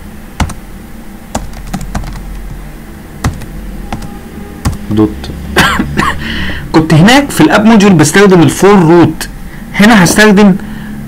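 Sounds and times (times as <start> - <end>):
computer keyboard typing: 0.4 - 0.6, 1.3 - 2.6, 3.2 - 4.9.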